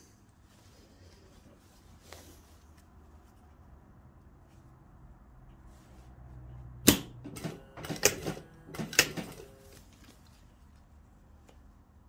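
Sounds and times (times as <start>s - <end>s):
faint motor hum: 0.0s - 12.0s
sewing machine clacking: 6.9s - 9.6s.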